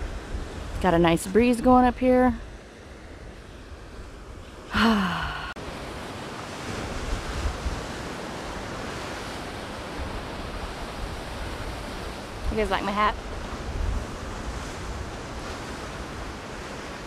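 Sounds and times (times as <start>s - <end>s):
wind on microphone: 0.0s - 4.7s, 6.4s - 17.0s.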